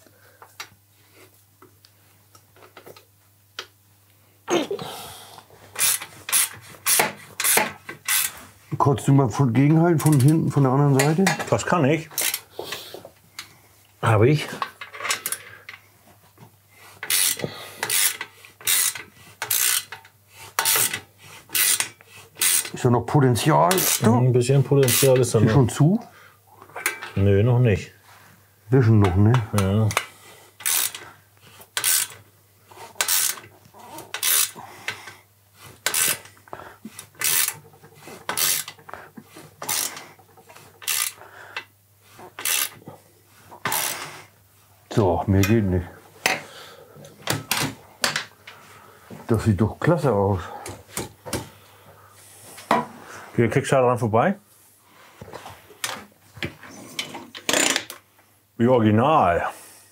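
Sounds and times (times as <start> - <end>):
tool rubbing: 5.7 - 8.5, 17.0 - 22.8, 23.4 - 25.4, 30.0 - 31.0, 31.6 - 35.0, 35.6 - 41.2, 42.1 - 44.3
ratchet wrench strokes: 5.8 - 8.4, 12.2 - 12.4, 17.0 - 20.0, 20.6 - 22.8, 23.7 - 24.0, 24.8 - 25.1, 30.6 - 31.0, 31.8 - 32.2, 33.0 - 33.5, 34.1 - 34.6, 35.8 - 36.3, 37.0 - 37.7, 38.3 - 38.8, 39.6 - 40.0, 40.8 - 41.2, 42.4 - 42.8, 43.7 - 44.1.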